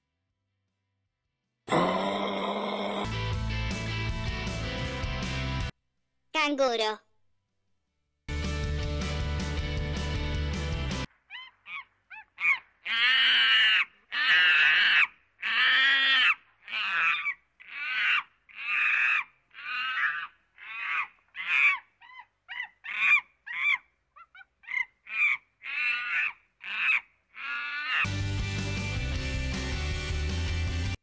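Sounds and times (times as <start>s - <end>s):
monkey calling: 11.3s - 28.1s.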